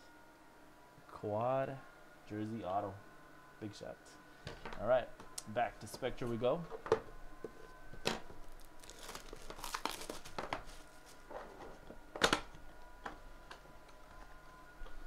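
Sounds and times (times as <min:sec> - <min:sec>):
plastic shrink wrap tearing: 0:08.4 - 0:10.8.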